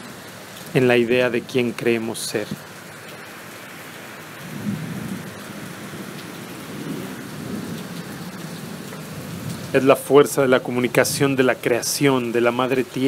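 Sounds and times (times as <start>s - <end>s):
rain hissing: 0.0s - 13.0s
low rumble of thunder: 4.4s - 11.4s.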